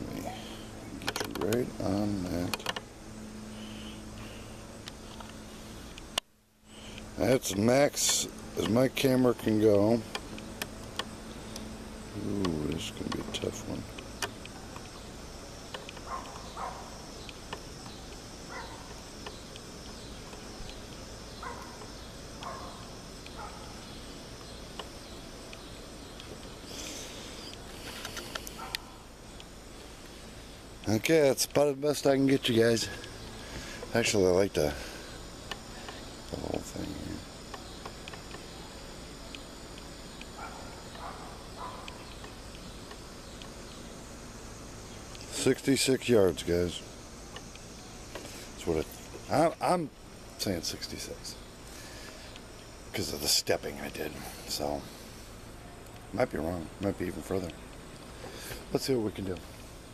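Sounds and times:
faint chirps: 0:00.0 - 0:59.9
insects chorus: 0:00.0 - 0:59.9
small clicks: 0:01.0 - 0:02.9, 0:15.6 - 0:30.2, 0:35.4 - 0:38.6.

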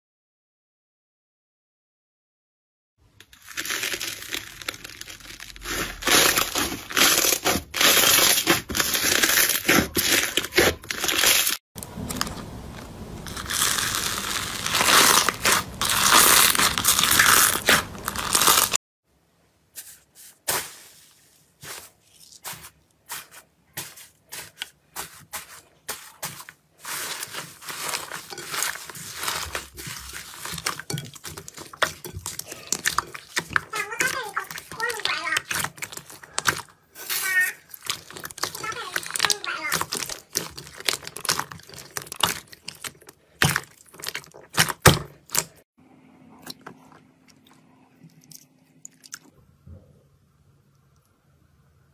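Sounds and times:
slime crackling and squelching: 0:03.2 - 0:18.8, 0:20.4 - 0:45.7.

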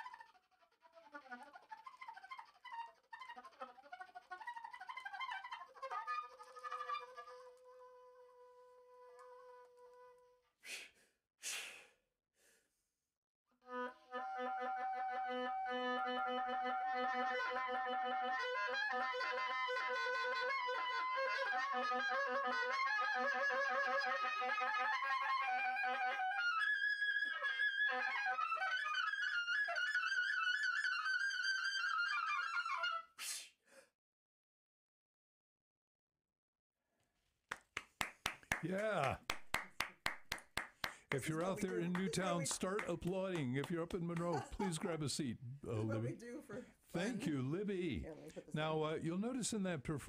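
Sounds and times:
breath hiss: 0:10.6 - 0:12.0, 0:33.2 - 0:33.6.

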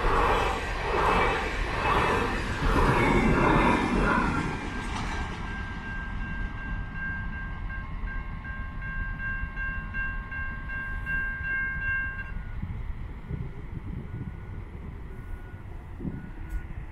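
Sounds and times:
high-pitched squeal: 0:00.0 - 0:06.4
freight train wagons rumbling: 0:00.0 - 0:16.9.

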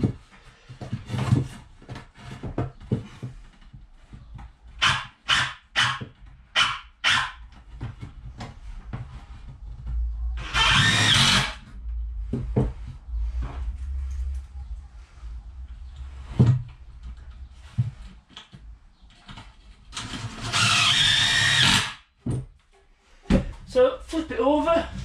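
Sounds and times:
cordless drill driving screws: 0:10.4 - 0:11.6, 0:20.0 - 0:22.0.

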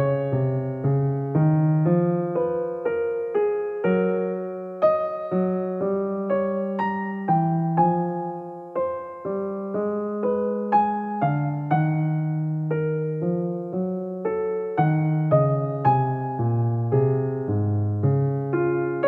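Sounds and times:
gentle keyboard melody: 0:00.0 - 0:19.0.

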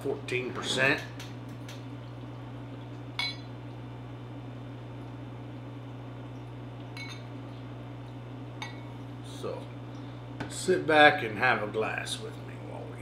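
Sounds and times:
steady low hum: 0:00.0 - 0:13.0
bottle clinking against glass: 0:03.2 - 0:03.5, 0:07.0 - 0:07.3.

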